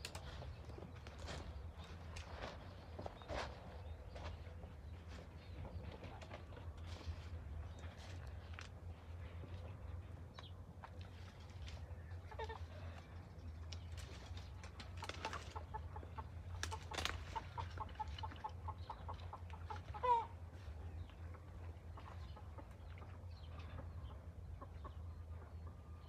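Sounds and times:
chicken clucking: 12.1 - 13.0, 15.0 - 26.0.

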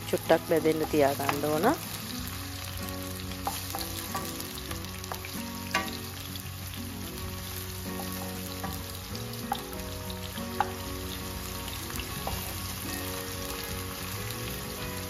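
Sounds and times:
onions sizzling in hot oil: 0.0 - 15.0
wooden spatula clicking against pan: 0.7 - 1.8, 3.3 - 6.0, 7.8 - 9.8, 10.4 - 10.8.

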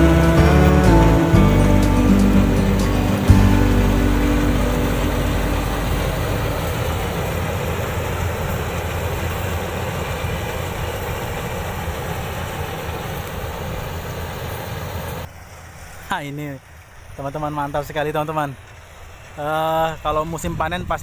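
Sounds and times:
combine harvester running: 0.0 - 15.3.

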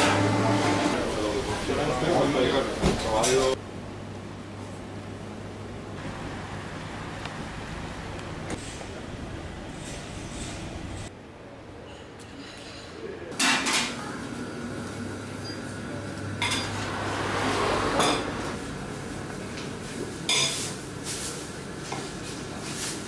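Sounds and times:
dishes and cutlery clattering: 12.2 - 14.0.

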